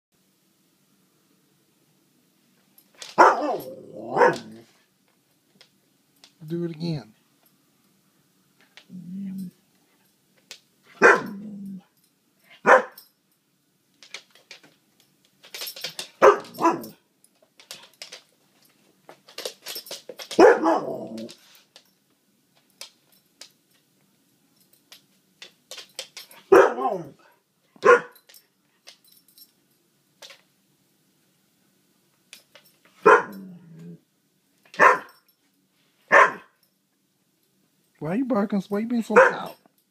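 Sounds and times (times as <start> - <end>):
dog barking: 3.2 - 4.6, 10.9 - 11.5, 12.5 - 13.0, 16.2 - 17.0, 20.4 - 21.2, 26.4 - 27.2, 27.8 - 28.2, 33.0 - 33.4, 34.8 - 35.2, 36.1 - 36.6, 39.1 - 39.6.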